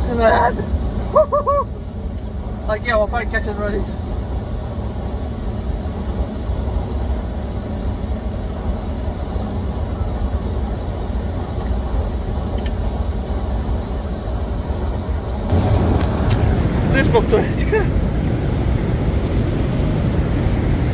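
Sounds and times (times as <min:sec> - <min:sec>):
river water pouring over weir: 0:15.5 - 0:20.9.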